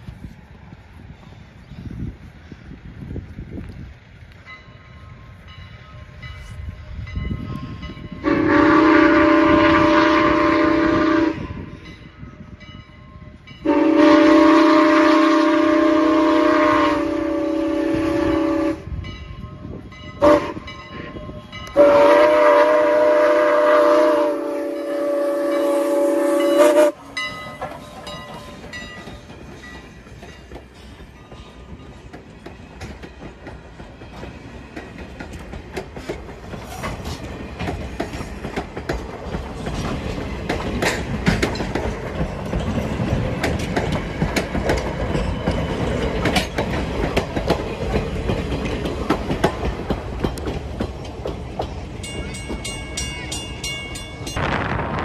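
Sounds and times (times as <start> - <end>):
steam locomotive whistle blasts: 7.6 - 11.8, 13.6 - 19.0, 20.2 - 27.3
train wheels clattering over rail joints: 27.1 - 54.3.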